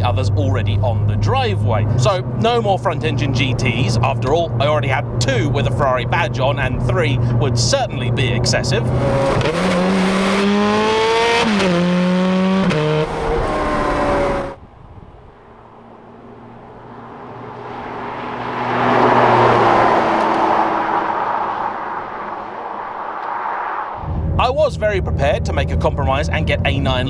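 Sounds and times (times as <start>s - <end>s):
sports car engine revving: 0.0s - 23.0s
car passing by: 15.4s - 24.4s.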